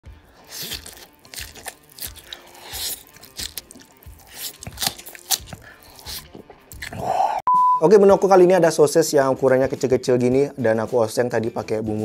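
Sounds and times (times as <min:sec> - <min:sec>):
person chewing crunchy food: 0:00.1 - 0:07.4.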